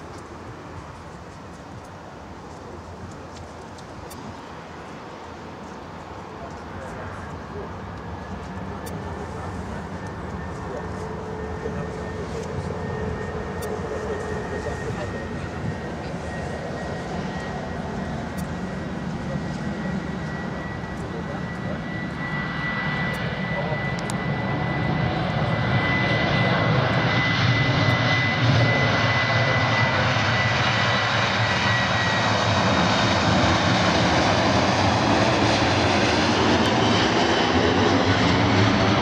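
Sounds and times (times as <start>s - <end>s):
jet engines at takeoff thrust: 0.0s - 39.0s.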